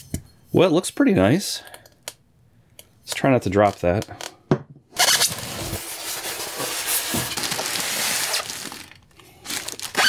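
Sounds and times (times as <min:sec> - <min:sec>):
cardboard rustling and scraping: 0:05.0 - 0:10.0.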